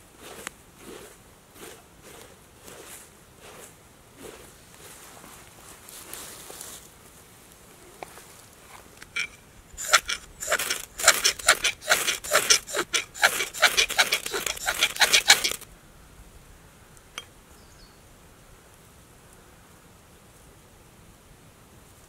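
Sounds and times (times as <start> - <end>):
knife scraping fire steel: 0.0 - 4.6, 9.0 - 15.6.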